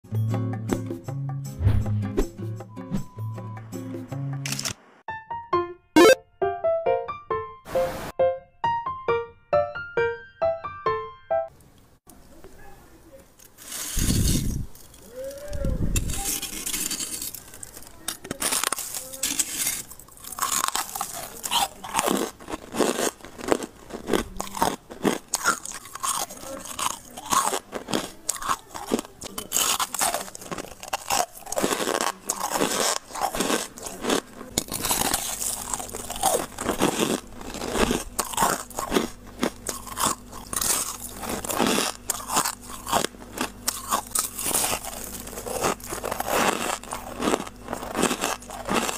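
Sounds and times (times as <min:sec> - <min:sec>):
ice crunching: 0:13.5 - 0:15.1, 0:16.0 - 0:48.9.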